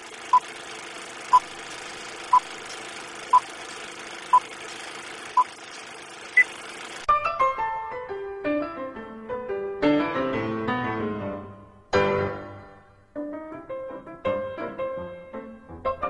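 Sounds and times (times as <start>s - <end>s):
film projector whirring: 0.0s - 7.1s
piano music: 7.1s - 16.0s.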